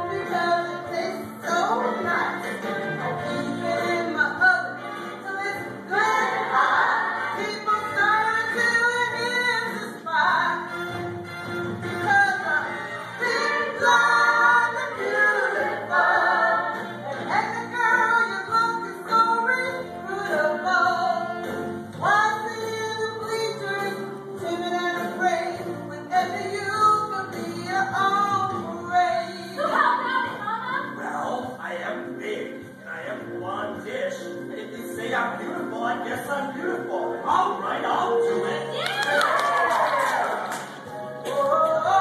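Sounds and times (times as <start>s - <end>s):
woman singing: 0.0s - 10.9s, 12.0s - 31.0s, 41.2s - 42.0s
backing music: 0.0s - 42.0s.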